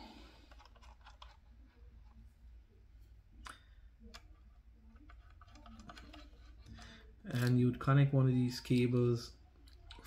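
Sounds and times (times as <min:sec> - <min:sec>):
plastic parts clicking: 0:00.4 - 0:01.5, 0:03.4 - 0:07.8.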